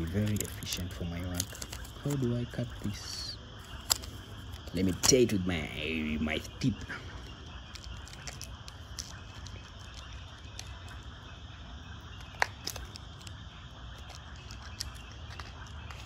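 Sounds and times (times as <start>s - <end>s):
faint high steady tone: 0.0s - 16.0s
low rumble and hiss: 0.0s - 16.0s.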